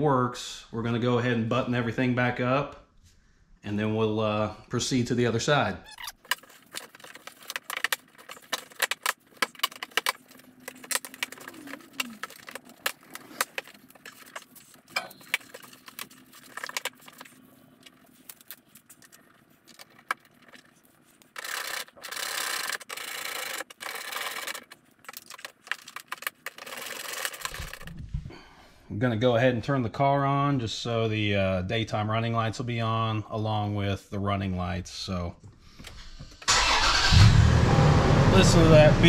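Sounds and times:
continuous rubbing: 5.9s - 28.2s.

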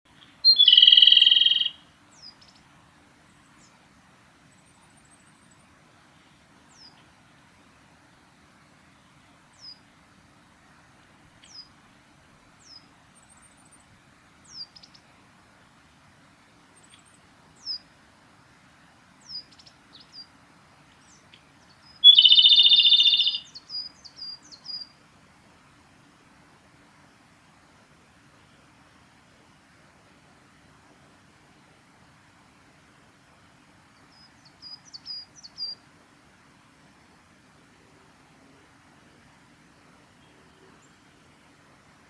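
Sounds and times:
bird singing rattling trill: 0.1s - 2.6s, 21.1s - 24.9s.

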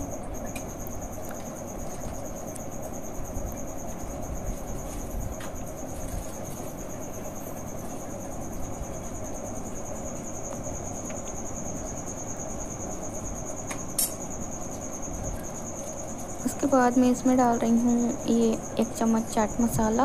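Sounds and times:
low background hum: 0.0s - 20.0s
sharp click: 13.7s - 14.2s.

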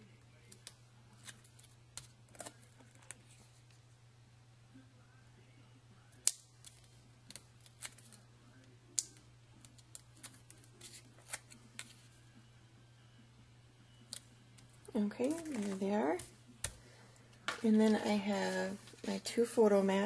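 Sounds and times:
paper clicks and crackles: 14.1s - 16.8s.

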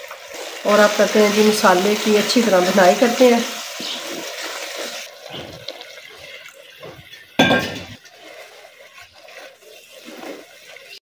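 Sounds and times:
wooden spoon scraping clay pot: 3.7s - 11.0s
metallic clank of steel vessel: 7.4s - 8.0s.

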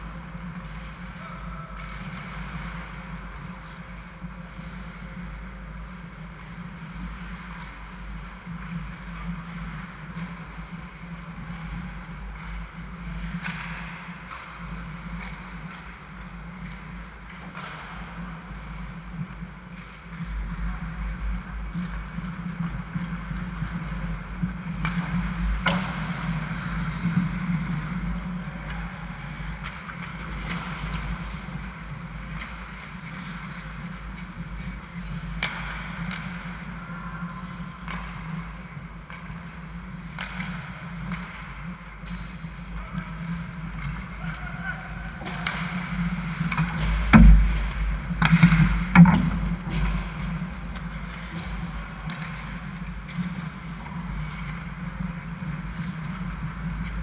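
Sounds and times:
hockey sticks and puck clacking: 0.0s - 57.0s
low rink rumble: 0.0s - 57.0s.

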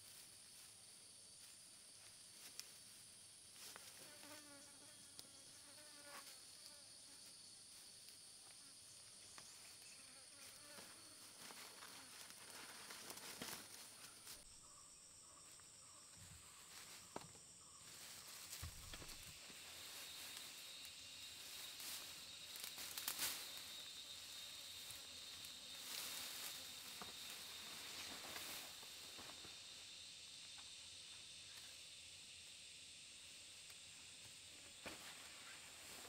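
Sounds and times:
forest insects droning: 0.0s - 36.0s
leafy branches rustling: 10.5s - 14.5s, 17.8s - 29.5s.

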